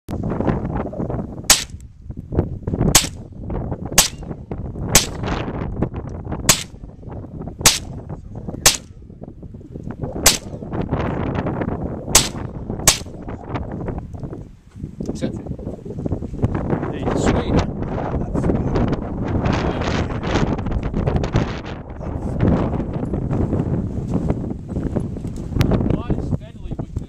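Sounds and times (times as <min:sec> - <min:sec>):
pistol shots: 0:01.5 - 0:01.8, 0:02.9 - 0:03.2, 0:04.0 - 0:04.3, 0:05.0 - 0:05.3, 0:06.5 - 0:06.8, 0:07.7 - 0:08.0, 0:08.7 - 0:08.9, 0:10.2 - 0:10.6, 0:12.2 - 0:13.1.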